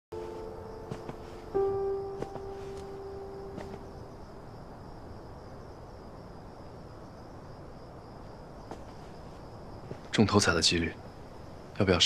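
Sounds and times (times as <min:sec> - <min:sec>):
cricket trill: 0:00.1 - 0:12.0
low background noise: 0:00.1 - 0:12.0.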